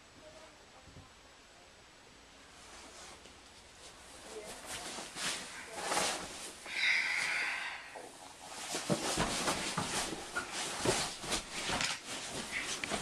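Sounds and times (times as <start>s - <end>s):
bedding rustling: 2.4s - 7.4s, 8.0s - 13.0s
soft bumps and scuffs: 2.6s - 6.6s, 8.1s - 13.0s.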